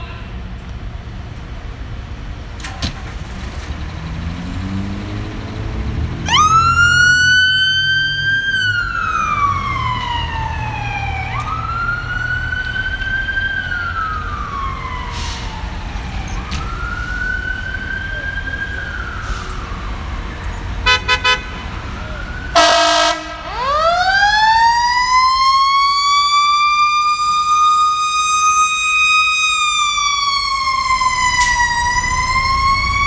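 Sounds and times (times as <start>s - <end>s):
vehicle engine accelerating: 2.9s - 12.5s, 29.6s - 33.0s
electronic siren wailing: 6.2s - 21.2s, 22.0s - 33.0s.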